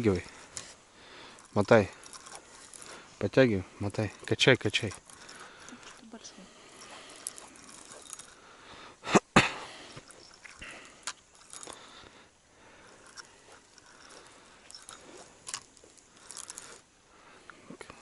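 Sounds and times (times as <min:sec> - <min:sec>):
fishing reel clicking: 0:00.0 - 0:08.5, 0:10.0 - 0:12.1, 0:12.7 - 0:16.9.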